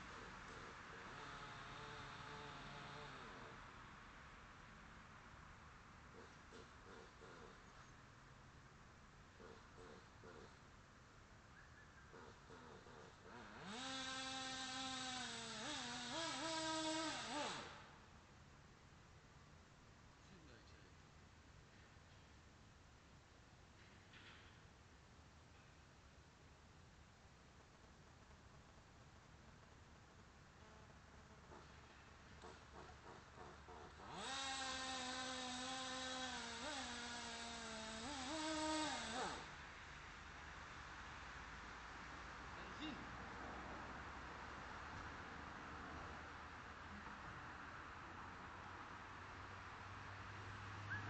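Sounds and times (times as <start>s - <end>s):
model engine revving: 13.3s - 17.8s, 34.0s - 39.5s.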